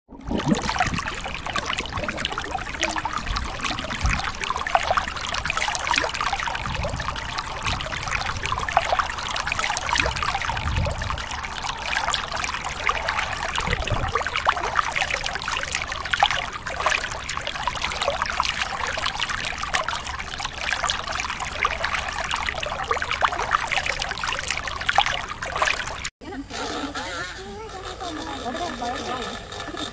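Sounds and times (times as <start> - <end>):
low underwater thumps: 0.1 - 14.9
underwater fizzing bubbles: 0.1 - 26.1.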